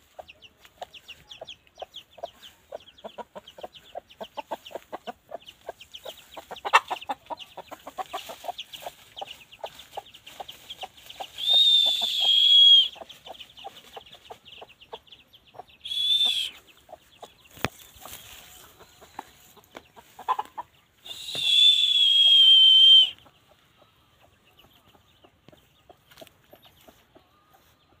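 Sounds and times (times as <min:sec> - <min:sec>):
hen clucking: 0:00.0 - 0:28.0
loud high drawn-out calls: 0:11.4 - 0:13.0, 0:15.8 - 0:16.6, 0:21.0 - 0:23.2.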